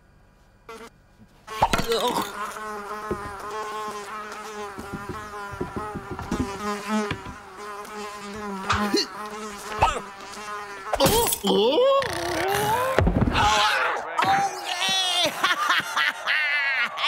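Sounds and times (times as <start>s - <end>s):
cartoon fly buzzing: 0.7s - 0.9s, 1.5s - 13.0s
short sharp knocks: 4.7s - 7.4s.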